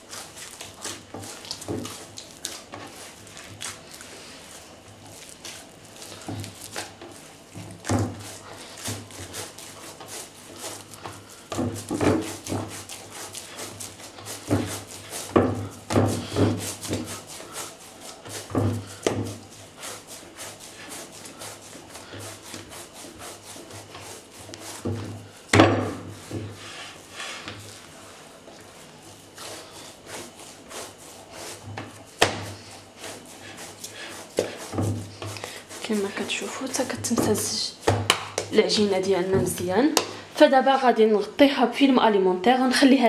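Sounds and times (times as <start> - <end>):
dough rubbing: 0.0 - 40.9
dough thumping against clay dish: 6.1 - 10.2, 11.0 - 13.0, 13.8 - 17.3, 18.3 - 19.4, 24.5 - 26.6, 31.6 - 32.6, 36.3 - 40.2.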